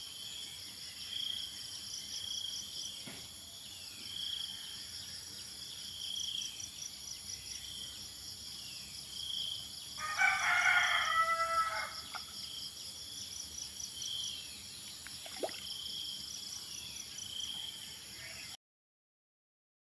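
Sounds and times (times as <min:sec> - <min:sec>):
rooster crowing: 0:10.0 - 0:12.2.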